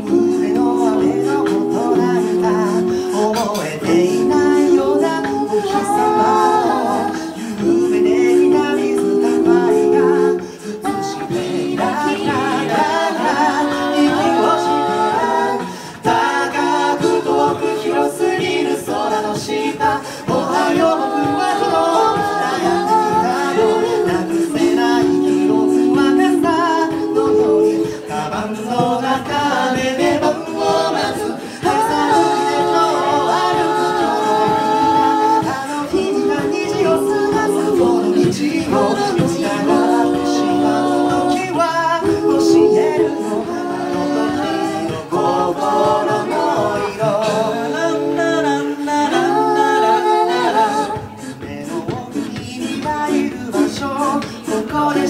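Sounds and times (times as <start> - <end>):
a cappella group singing: 0.0 - 55.0
bass vocalist: 0.0 - 55.0
beatboxed vocal percussion: 0.0 - 55.0.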